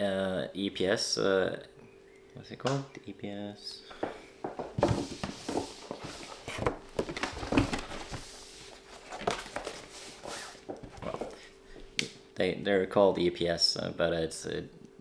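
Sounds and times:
cables rustling: 4.0 - 11.6.

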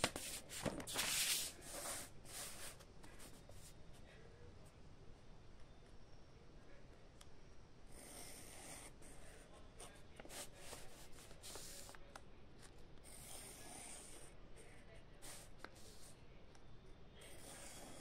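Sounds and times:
pen scratching on paper: 0.0 - 3.7, 7.9 - 12.0, 13.0 - 14.4, 15.2 - 16.1, 17.2 - 18.0.

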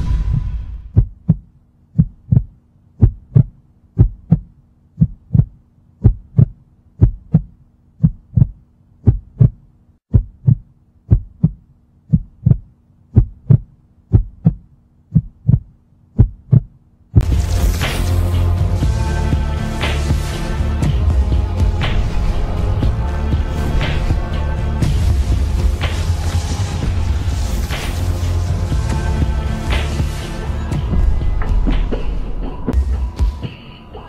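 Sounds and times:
heartbeat thumps: 0.0 - 17.5.

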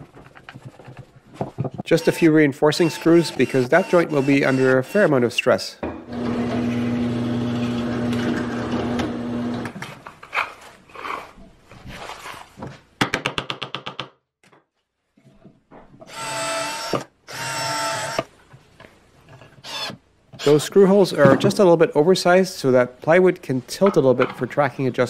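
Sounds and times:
cordless drill driving screws: 2.8 - 5.1
drill press boring wood: 2.8 - 5.1, 6.1 - 9.7.

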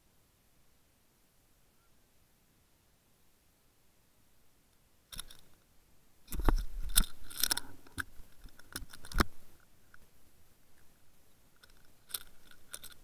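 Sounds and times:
rustling: 5.1 - 13.0
camera handling rubbing: 6.3 - 9.4.

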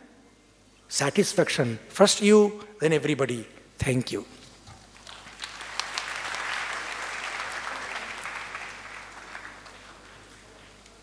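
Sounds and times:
audience applauding: 4.9 - 10.8.

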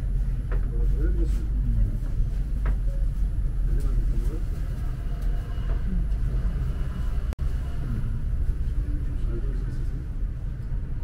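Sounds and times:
cars driving past: 4.8 - 11.0.

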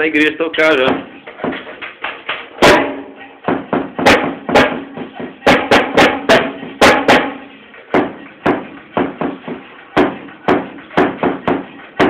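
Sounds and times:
snare and tom hits: 2.6 - 12.0.

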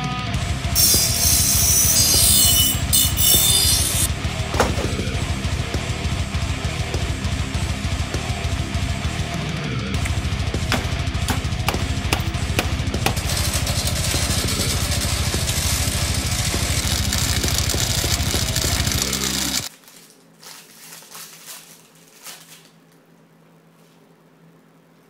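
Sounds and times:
loud music with drums: 0.0 - 19.7.

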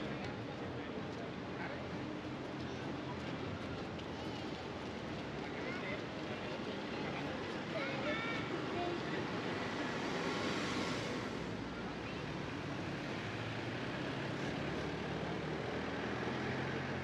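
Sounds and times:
cars passing: 8.4 - 17.0.

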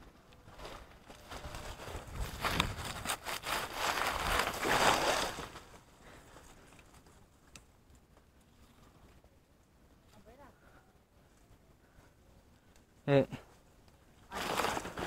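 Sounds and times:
rustling and crunching dry leaves: 0.4 - 7.2, 14.2 - 15.0.

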